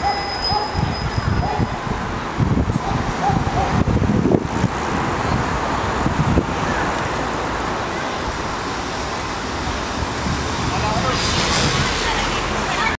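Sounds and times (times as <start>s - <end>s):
distant traffic: 0.0s - 13.0s
faint voices: 10.6s - 13.0s.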